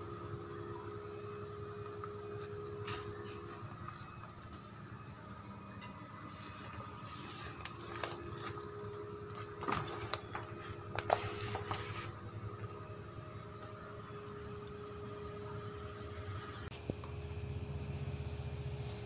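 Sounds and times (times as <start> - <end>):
steady hum: 0.0 - 19.0
plastic film rustling and crinkling: 6.3 - 12.2.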